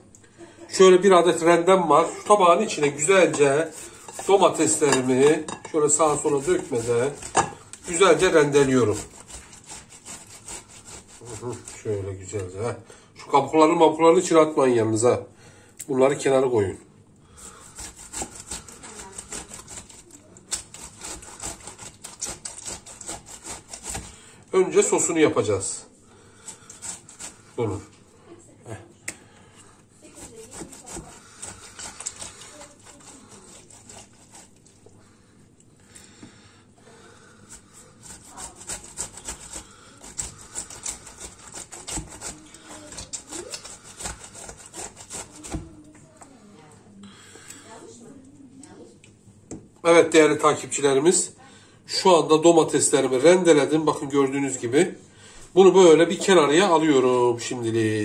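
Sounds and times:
tomato rasping on metal grater: 0.9 - 12.7, 17.3 - 27.9, 30.0 - 35.1, 36.9 - 45.9.

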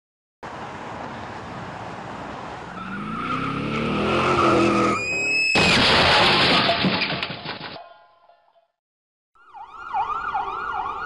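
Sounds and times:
truck road and engine noise: 0.4 - 6.2.

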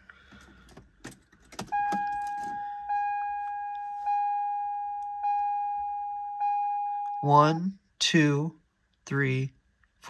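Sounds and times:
keys clicking into ignition: 0.3 - 2.7
car warning chime: 1.6 - 7.6.

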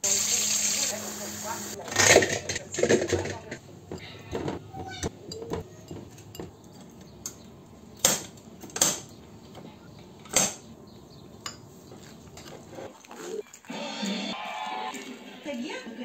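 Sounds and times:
metal utensils clinking on pot: 1.8 - 7.4.

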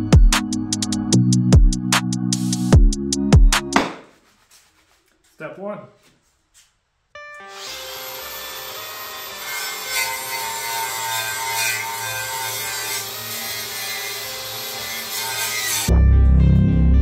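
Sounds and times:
power tool grinding metal: 7.4 - 15.9.

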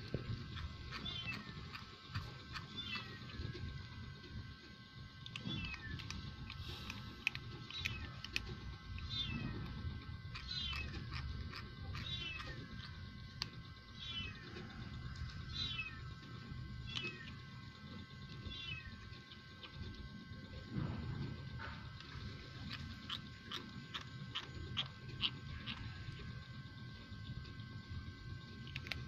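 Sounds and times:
cat food being crunched: 5.2 - 20.0, 21.3 - 27.6, 28.4 - 29.0.

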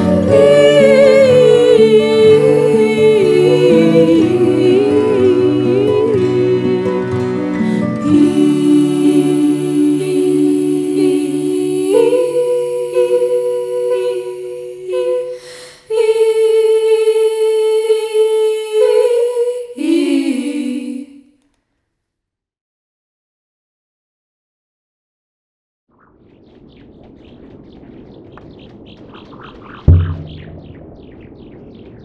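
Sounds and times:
wordless vocal harmony: 0.0 - 21.3.

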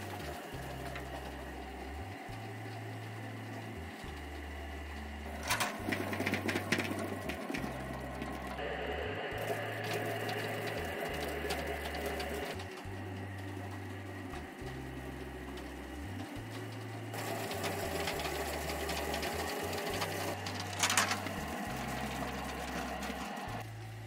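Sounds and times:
potato peeling machine running: 0.0 - 24.0
potatoes rattling against drum: 5.3 - 8.5, 9.8 - 23.6
loud clatter: 16.3 - 23.7.

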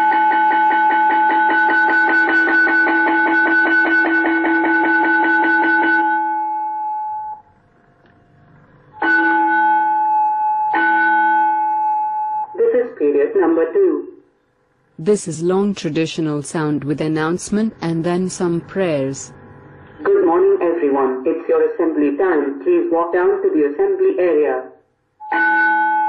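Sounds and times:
electric school bell ringing: 0.0 - 7.5, 8.9 - 12.6, 25.2 - 26.0
two-tone chime: 25.2 - 26.0.

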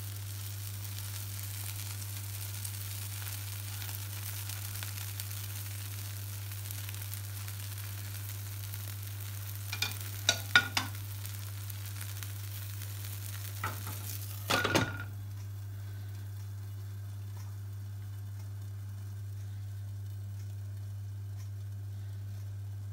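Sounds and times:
omelette sizzling in frying pan: 0.0 - 22.9
glass lid clattering on pan: 9.7 - 11.0, 13.6 - 15.1.

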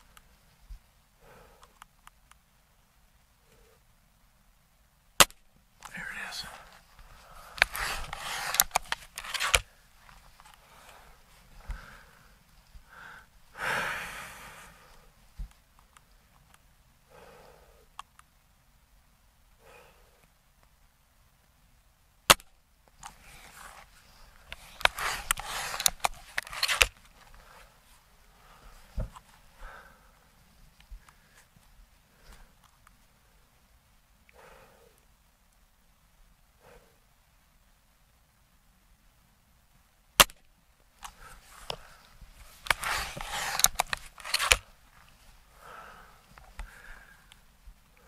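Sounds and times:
rifle handling rustling: 5.2 - 12.8, 22.3 - 29.5, 41.0 - 47.4
air rifle crack: 7.2 - 9.7, 24.5 - 27.6, 41.0 - 44.7
rifle cocking clicks: 7.6 - 9.7, 40.2 - 40.5, 42.6 - 44.7.

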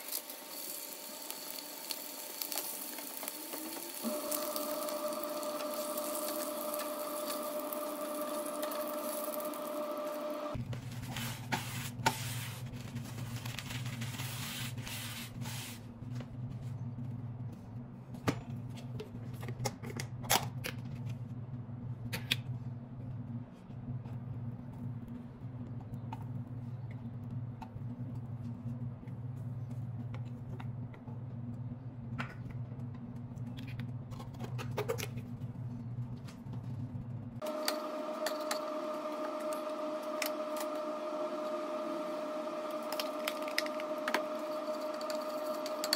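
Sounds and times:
paper towel rubbing a pan: 10.8 - 15.8.

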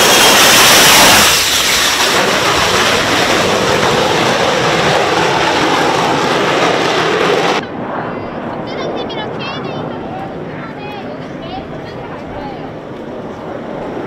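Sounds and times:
fighter jet engine roaring: 0.0 - 14.0.

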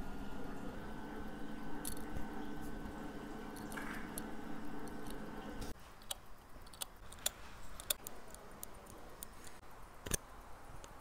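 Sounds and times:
metallic clicks of watch parts: 6.0 - 10.2.

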